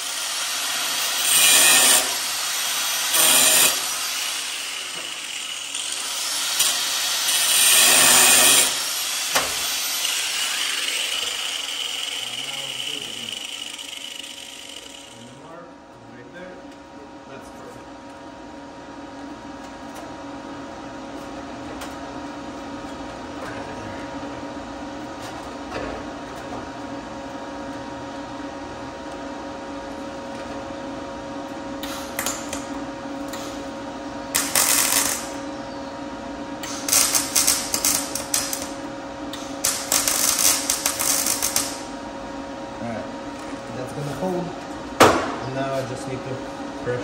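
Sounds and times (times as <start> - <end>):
steady welder hum: 0.0 - 47.0
welding crackle: 0.1 - 15.2, 34.4 - 35.3, 36.7 - 38.8, 39.4 - 41.8.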